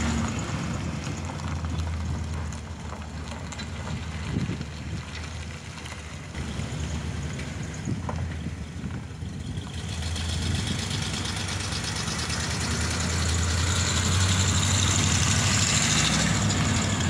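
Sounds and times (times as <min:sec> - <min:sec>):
truck engine driving up: 0:00.0 - 0:17.0.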